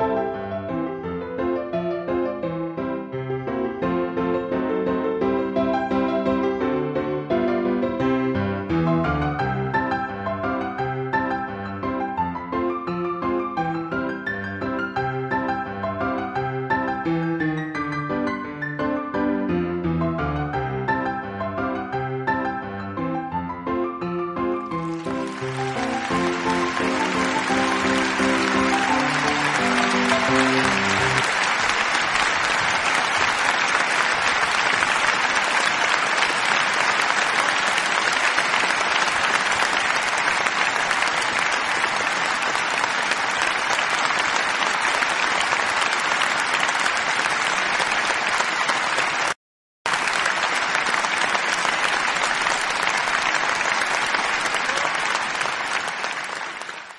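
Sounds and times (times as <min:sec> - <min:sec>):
music notes: 0:23.8 - 0:31.5
applause: 0:24.6 - 0:56.9.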